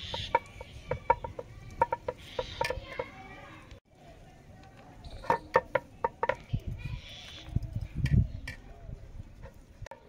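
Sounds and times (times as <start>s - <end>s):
hen clucking: 0.0s - 3.1s.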